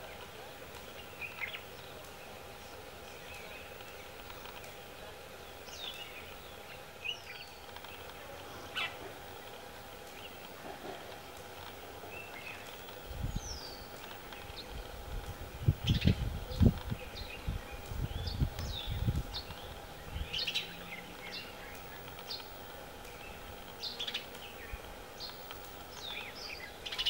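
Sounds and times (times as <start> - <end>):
faint steady hum: 0.0 - 27.0
bird chirps: 5.4 - 10.5, 15.7 - 27.0.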